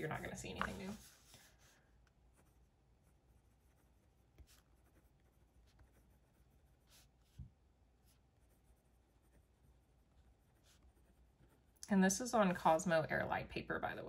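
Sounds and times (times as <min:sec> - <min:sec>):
pen scratching on paper: 0:02.3 - 0:07.4, 0:08.0 - 0:11.8.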